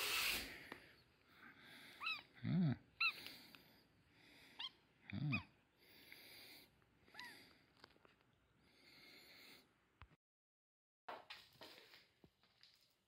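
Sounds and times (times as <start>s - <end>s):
kitten humming low: 2.0s - 3.4s, 4.6s - 5.6s
kitten mewing: 2.0s - 3.4s, 4.6s - 5.6s.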